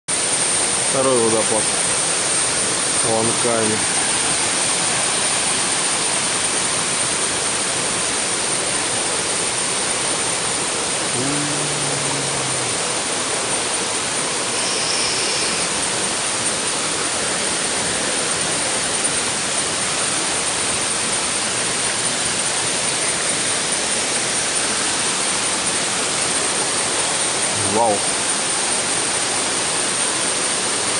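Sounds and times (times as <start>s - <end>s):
waterfall rushing: 0.1s - 30.9s.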